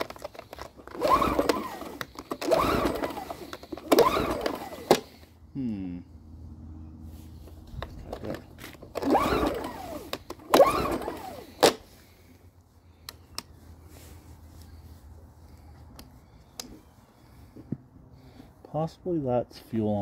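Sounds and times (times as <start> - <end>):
recoil starter pulls: 0.0 - 5.3, 7.7 - 12.3
generator engine turning over: 0.0 - 5.4, 7.8 - 12.3.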